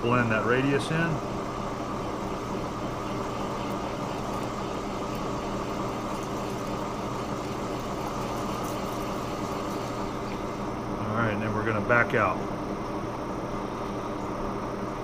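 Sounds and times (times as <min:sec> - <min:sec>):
lathe motor humming: 0:00.0 - 0:11.0.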